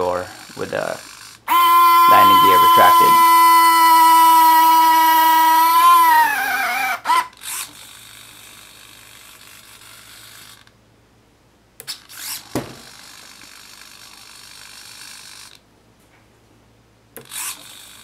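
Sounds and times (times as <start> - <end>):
servos whirring: 0.3 - 10.8, 11.8 - 15.6, 17.2 - 18.0.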